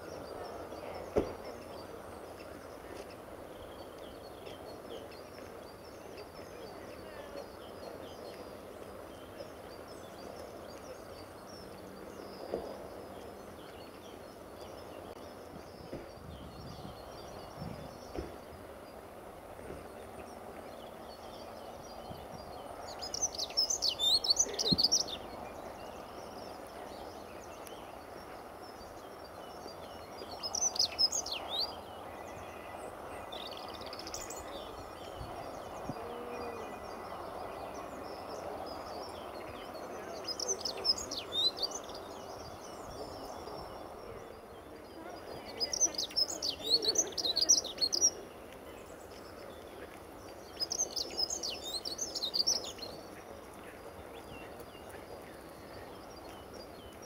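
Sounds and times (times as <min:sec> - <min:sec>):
bird warbling song: 0:19.8 - 0:57.0.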